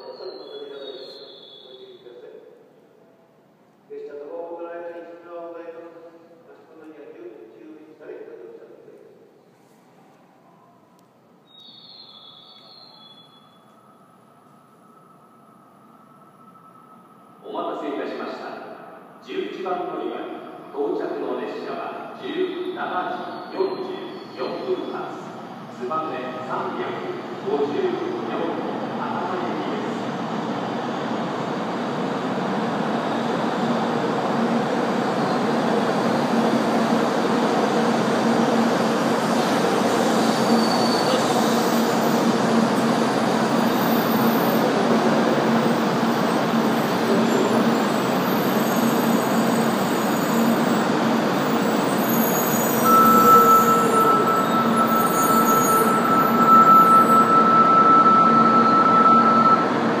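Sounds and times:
train rolling to a stop: 11.5 - 17.8, 26.8 - 60.0
steady high tone: 12.2 - 18.0, 52.8 - 59.8.

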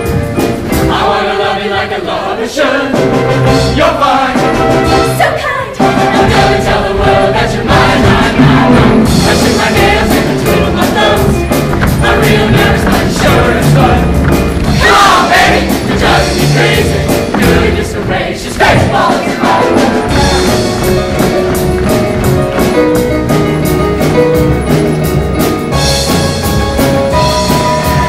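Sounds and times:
band playing: 0.0 - 28.0
choir singing: 0.5 - 21.4
steady drum beat: 2.9 - 28.0.

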